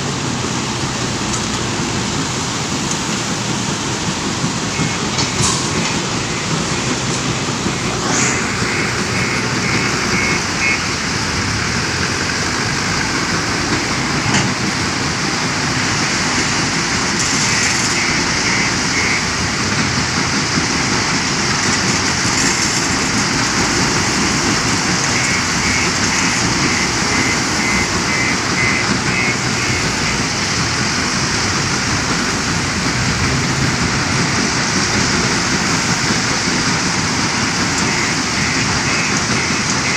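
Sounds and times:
diesel engine running: 0.0s - 39.9s
stone crusher machinery: 15.6s - 39.9s
high-pitched beeping: 24.7s - 30.3s.

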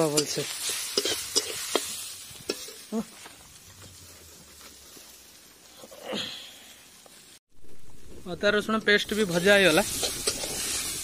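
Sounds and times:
wood fire crackling: 0.0s - 11.0s
breathy sound: 5.7s - 6.8s.

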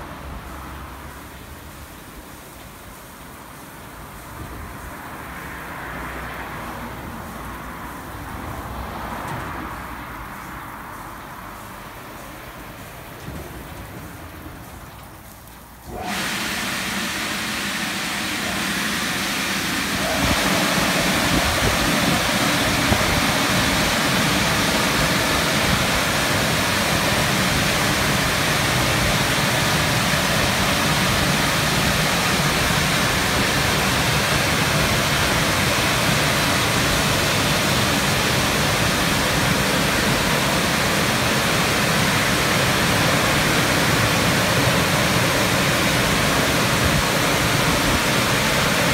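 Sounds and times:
drying blowers rushing air: 13.2s - 48.9s.

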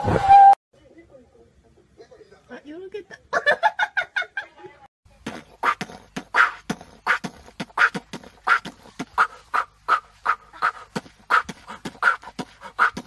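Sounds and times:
goat grunting: 5.5s - 13.0s.

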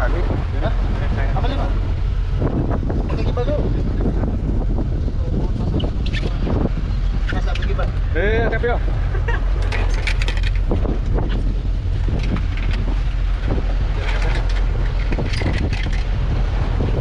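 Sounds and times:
boat engine rumble: 0.0s - 17.0s
wind buffeting microphone: 0.0s - 17.0s.

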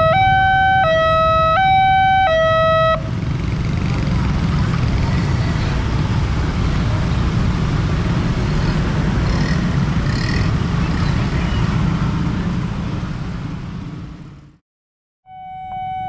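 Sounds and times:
road traffic rumble: 0.0s - 14.6s.

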